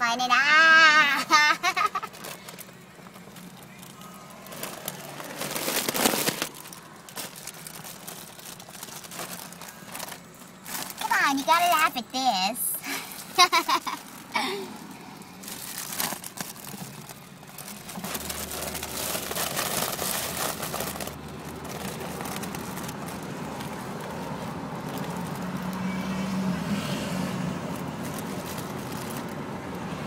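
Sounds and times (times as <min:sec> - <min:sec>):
foil balloon crinkling: 0:00.6 - 0:25.8, 0:27.7 - 0:29.7
car interior rumble: 0:13.1 - 0:26.0.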